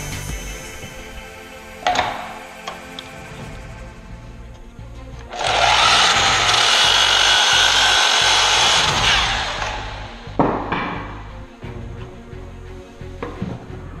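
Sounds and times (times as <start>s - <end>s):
miter saw cutting wood: 5.2s - 10.2s.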